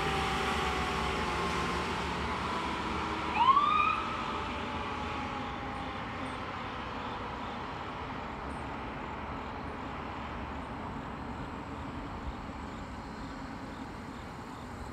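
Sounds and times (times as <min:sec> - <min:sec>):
siren winding down: 0:00.0 - 0:06.1
fire engine rumble and road noise: 0:00.0 - 0:14.9.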